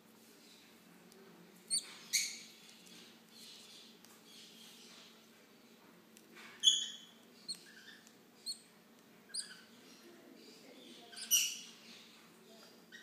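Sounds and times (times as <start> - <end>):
parrot chicks squeaky calls: 1.7 - 5.1, 6.6 - 8.7, 9.3 - 10.0, 10.9 - 12.1.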